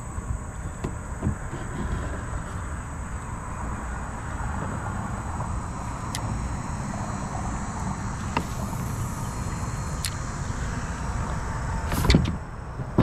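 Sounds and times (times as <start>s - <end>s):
traffic rumble on bridge: 0.0s - 13.0s
fishing reel clicks: 8.3s - 10.2s.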